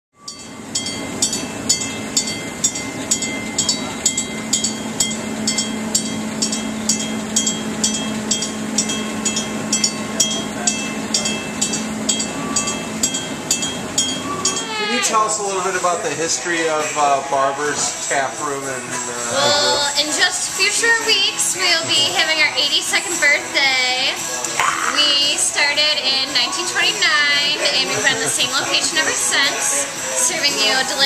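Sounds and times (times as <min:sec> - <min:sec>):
warning bell striking: 0:00.2 - 0:15.0.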